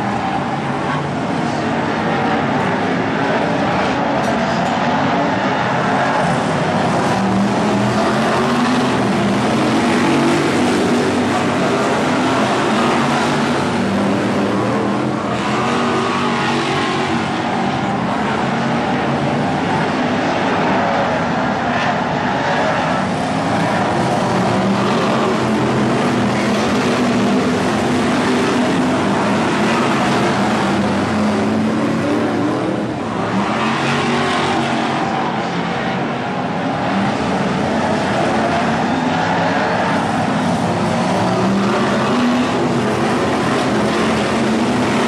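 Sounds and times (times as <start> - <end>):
race car engines running: 0.0 - 45.0.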